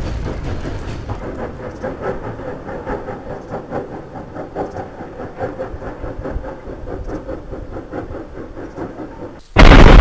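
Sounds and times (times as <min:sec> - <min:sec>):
steam locomotive chuffing: 0:00.0 - 0:09.4.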